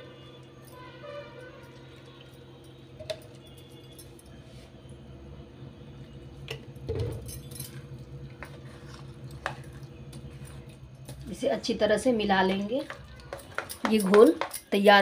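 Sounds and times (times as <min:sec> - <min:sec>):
steady low hum: 0:02.2 - 0:14.7
spoon stirring batter in metal bowl: 0:08.3 - 0:11.4, 0:12.4 - 0:15.0
spoon clinking against bowl: 0:12.8 - 0:14.9.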